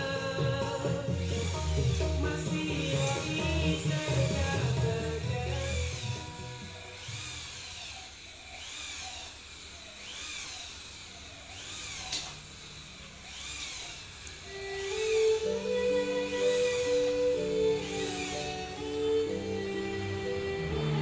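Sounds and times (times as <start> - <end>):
electric drill whining: 0.0 - 21.0
sharp click: 12.0 - 12.4.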